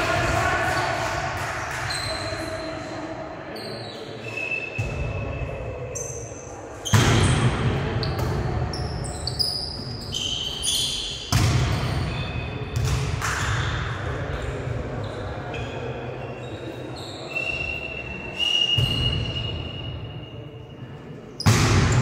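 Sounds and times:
volleyball hits echoing: 6.8s - 8.8s, 11.3s - 14.1s, 21.4s - 22.0s
sports shoes squeaking on court: 8.0s - 12.8s, 15.0s - 19.9s.

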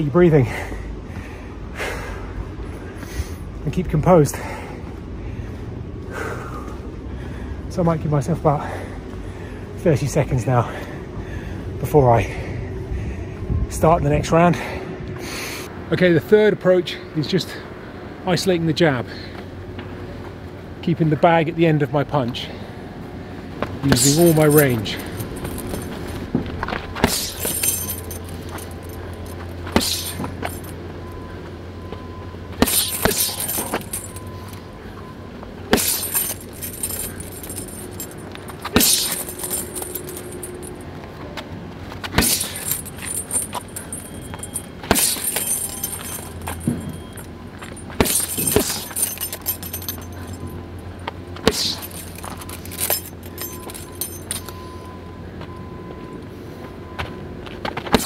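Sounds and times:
low hum: 23.0s - 57.2s
chain jangling: 23.9s - 26.3s, 27.0s - 30.8s, 32.6s - 34.6s, 35.7s - 40.9s, 42.2s - 54.6s
gloved punches hitting heavy bag: 27.0s - 27.7s, 29.7s - 30.4s, 32.6s - 34.0s, 38.7s - 39.5s, 42.2s - 42.7s, 44.9s - 45.4s.

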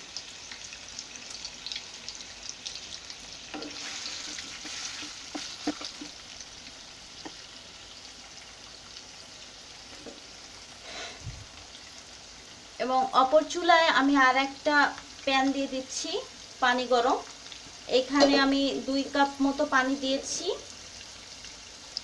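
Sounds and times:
food sizzling in hot oil: 0.0s - 22.0s
wooden spatula knocking pan: 3.6s - 6.2s, 18.1s - 18.6s.

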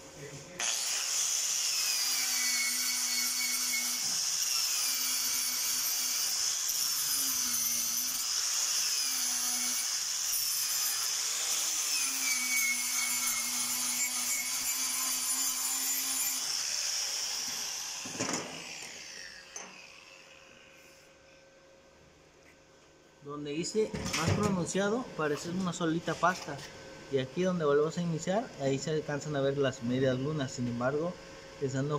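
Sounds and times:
angle grinder whining: 0.6s - 21.0s.

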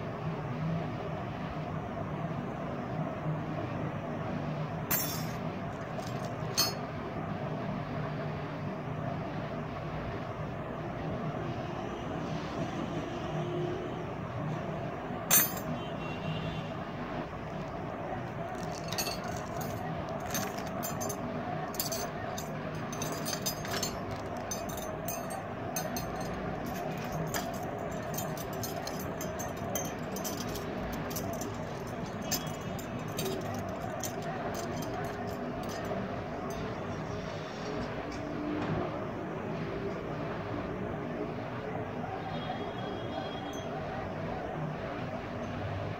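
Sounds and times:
metal bracelets clinking: 4.9s - 6.9s, 15.3s - 15.8s, 17.4s - 36.8s.

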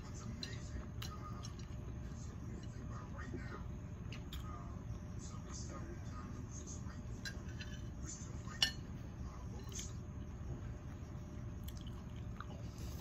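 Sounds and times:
steady low hum: 0.0s - 13.0s
cutlery clinking against plate: 7.2s - 8.9s.

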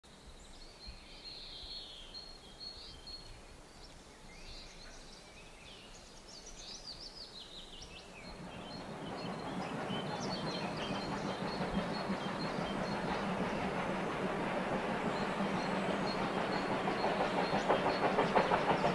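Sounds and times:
birds chirping: 7.6s - 18.9s
steam locomotive rushing: 8.2s - 18.9s.

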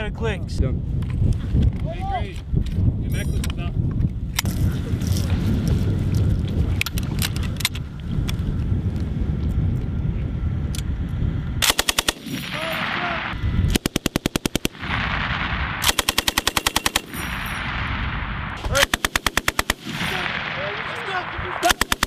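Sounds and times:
machine gun firing bursts: 11.6s - 13.0s, 13.7s - 17.5s, 18.6s - 22.0s.

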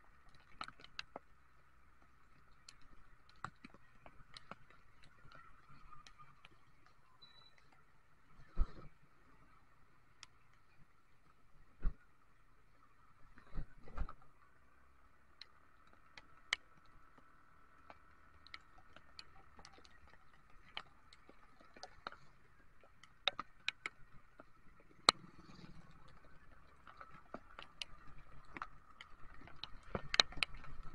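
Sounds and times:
faint steady hum: 0.0s - 30.9s.

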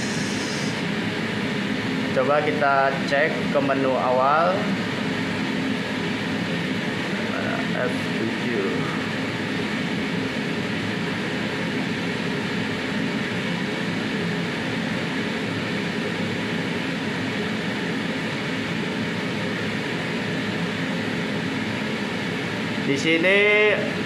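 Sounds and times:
ventilation fans humming: 0.0s - 24.0s.

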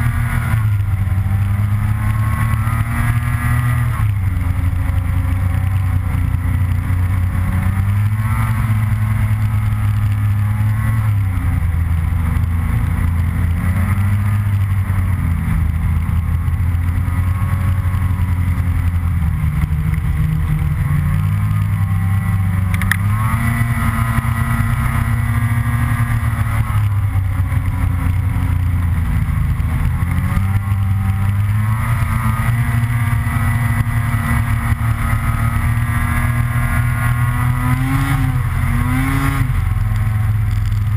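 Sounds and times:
snowmobile engine revving: 0.0s - 40.9s.

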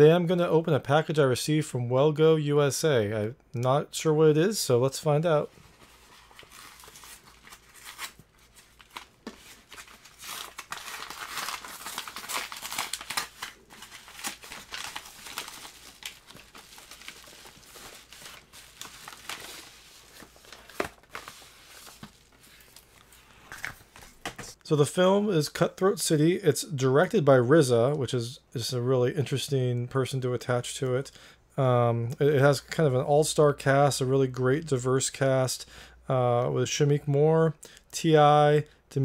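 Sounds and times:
paper mailer crinkling and tearing: 5.6s - 23.6s.

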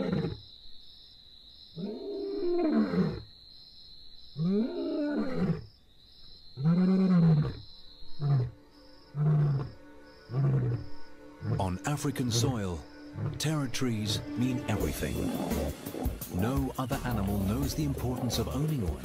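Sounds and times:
lion roaring: 0.0s - 0.4s, 1.8s - 3.3s, 6.6s - 7.6s, 9.2s - 13.5s, 14.8s - 19.0s
lion grunting: 9.2s - 19.0s.

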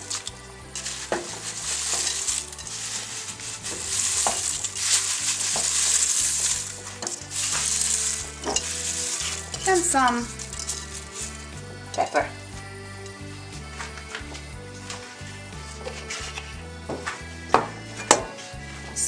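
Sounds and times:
rustling hiss of leaves: 0.0s - 12.4s.

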